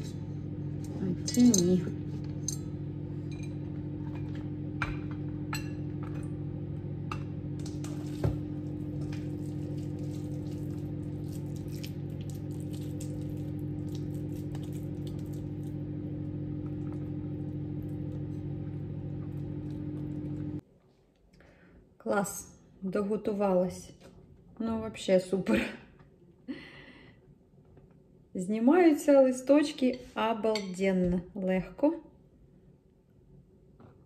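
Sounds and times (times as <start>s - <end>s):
microwave oven humming: 0.0s - 20.6s.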